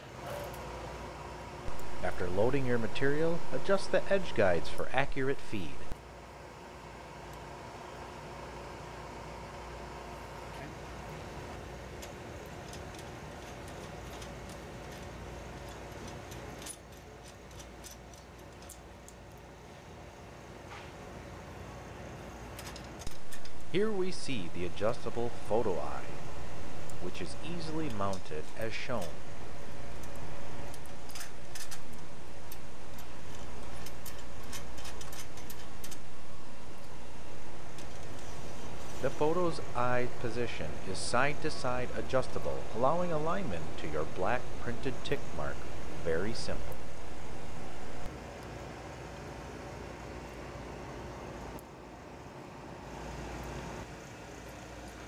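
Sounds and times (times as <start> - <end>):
machine humming: 1.6 - 6.0, 23.0 - 48.2.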